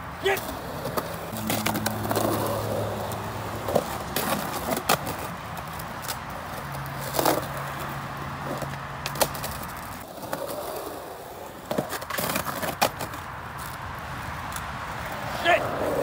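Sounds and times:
skateboard wheels rolling on concrete: 0.0s - 16.0s
skateboard clacking on ground: 0.2s - 16.0s
skateboard knocks and scrapes: 8.4s - 13.8s.

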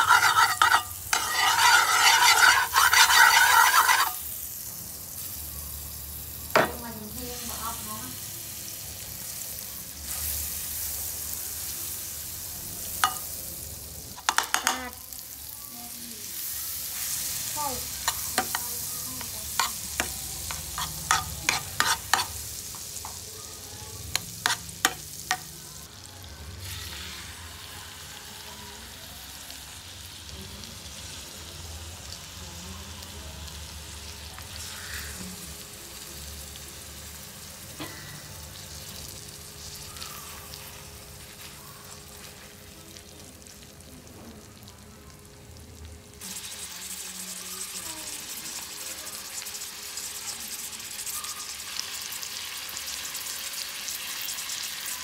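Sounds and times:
utensil scraping a pan: 0.0s - 4.2s, 19.6s - 22.4s
butter sizzling in a pan: 0.0s - 55.0s.

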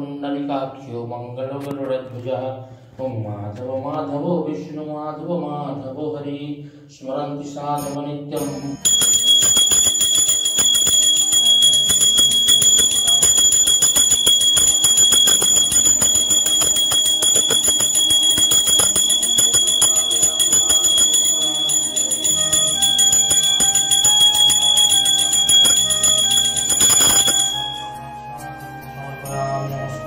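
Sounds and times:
hand bell jangling: 8.8s - 28.0s.

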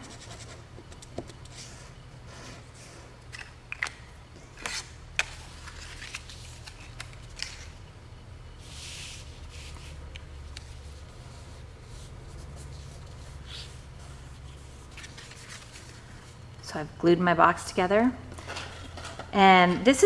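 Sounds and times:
paper rubbing: 8.6s - 16.2s.

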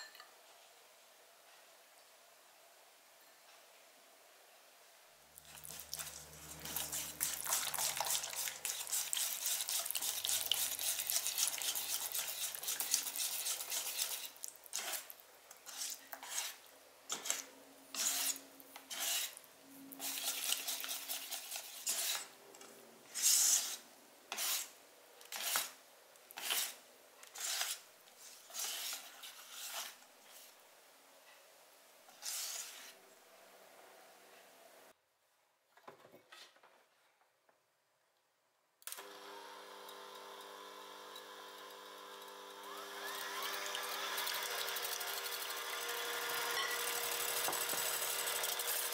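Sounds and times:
whisk scraping a metal bowl: 5.4s - 19.4s, 20.0s - 22.3s, 23.1s - 24.7s, 26.4s - 26.8s, 27.4s - 30.0s.

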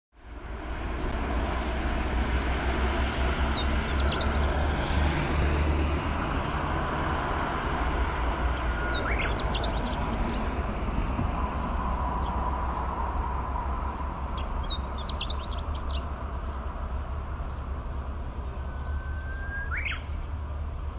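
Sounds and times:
bird chirping song: 0.8s - 1.2s, 3.4s - 5.3s, 8.5s - 10.7s, 11.4s - 20.9s.

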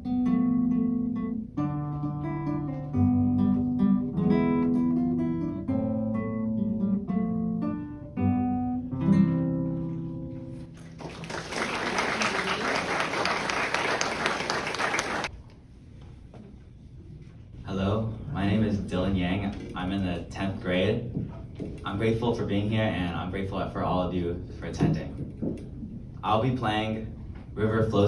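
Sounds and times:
acoustic guitar plucking: 0.0s - 10.8s
audience applause: 10.8s - 15.3s.

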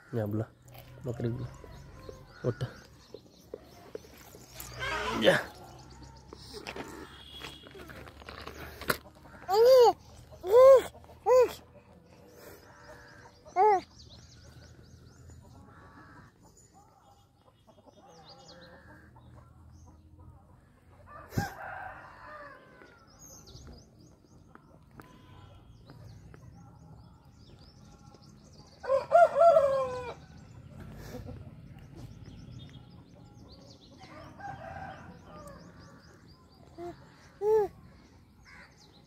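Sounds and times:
small birds chirping: 0.0s - 20.0s, 22.8s - 29.3s, 30.1s - 39.0s
rooster crowing: 28.8s - 30.2s.

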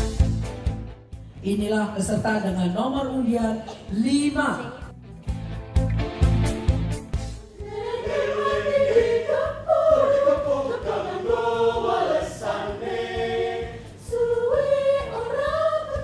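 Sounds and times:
mixed choir singing: 7.5s - 16.0s.

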